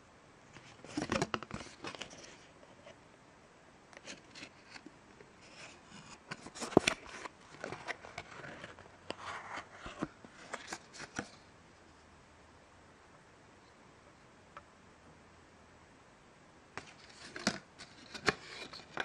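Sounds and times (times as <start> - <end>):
cardboard card rubbing and scraping: 5.4 - 11.4, 16.8 - 19.0.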